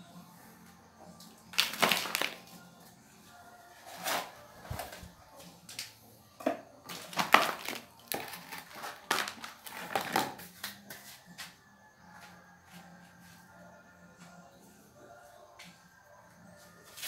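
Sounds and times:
damp clay scraping and crunching: 1.5s - 2.5s, 6.9s - 10.4s.

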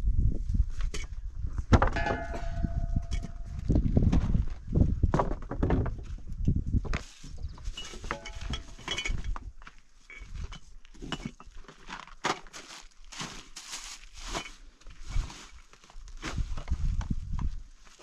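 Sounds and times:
light clinks: 7.8s - 9.4s
sack rustling and crinkling: 11.8s - 17.2s.

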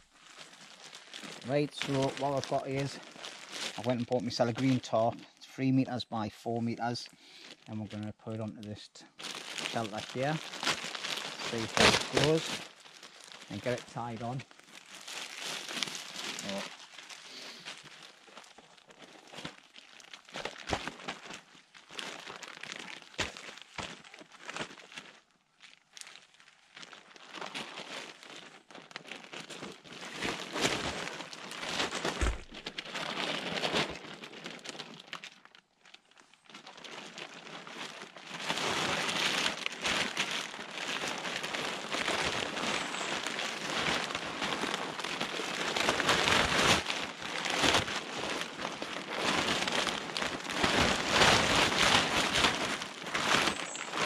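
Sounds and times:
plastic tarp rustling and crackling: 0.0s - 54.0s.

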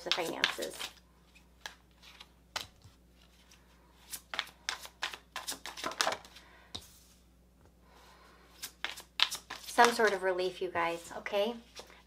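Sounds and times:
cards shuffling and snapping: 0.0s - 6.9s, 8.6s - 10.2s.

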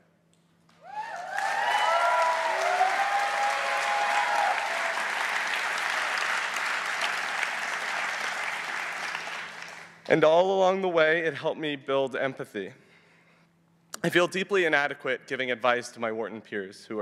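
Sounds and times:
audience applauding: 0.8s - 10.0s.

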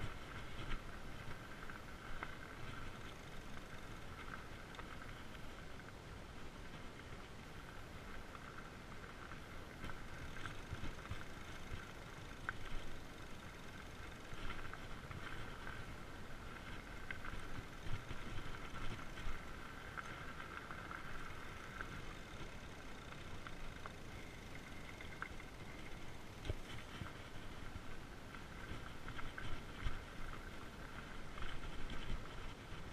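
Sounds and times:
bike tyre hum on dirt: 0.0s - 32.9s.

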